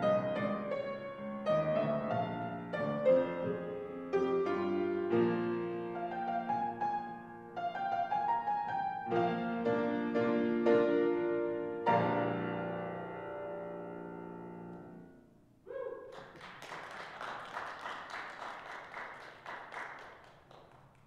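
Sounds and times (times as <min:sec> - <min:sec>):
grand piano chords: 0:00.0 - 0:15.6
people clapping: 0:16.0 - 0:21.0.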